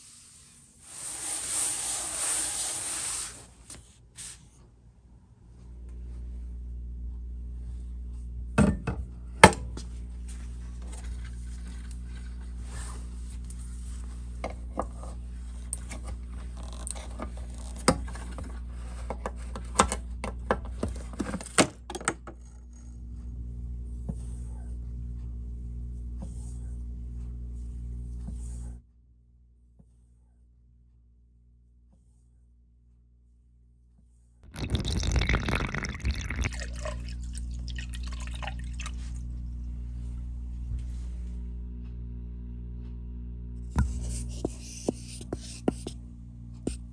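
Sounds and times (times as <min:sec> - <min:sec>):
steady low hum: 0:03.3 - 0:16.6, 0:22.5 - 0:33.9, 0:36.1 - 0:46.9.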